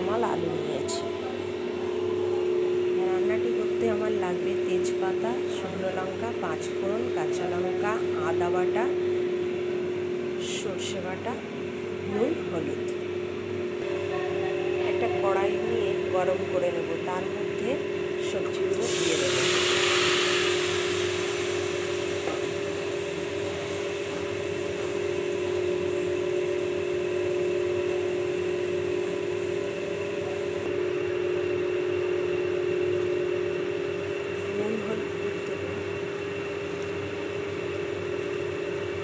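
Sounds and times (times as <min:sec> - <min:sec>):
steady mechanical hum: 0:00.0 - 0:39.0
vegetables hissing in a hot pan: 0:18.7 - 0:26.3.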